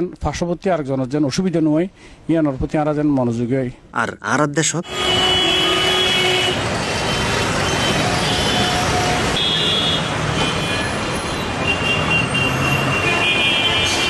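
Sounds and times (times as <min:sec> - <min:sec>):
heavy city traffic: 0:03.3 - 0:14.0
vehicle horns tooting: 0:04.8 - 0:14.0.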